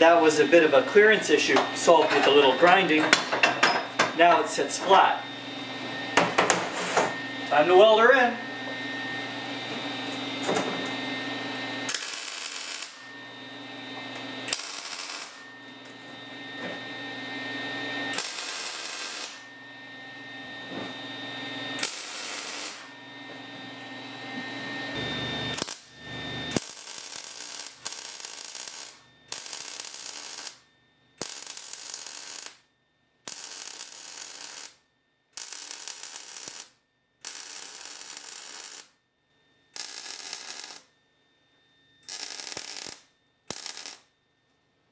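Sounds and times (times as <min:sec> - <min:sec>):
welding arc bursts: 0:11.9 - 0:13.0, 0:14.5 - 0:15.4, 0:18.1 - 0:19.4, 0:21.8 - 0:22.9, 0:25.5 - 0:25.9, 0:26.5 - 0:30.6, 0:31.2 - 0:32.6, 0:33.3 - 0:34.8, 0:35.4 - 0:39.0, 0:39.8 - 0:40.9, 0:42.0 - 0:44.1.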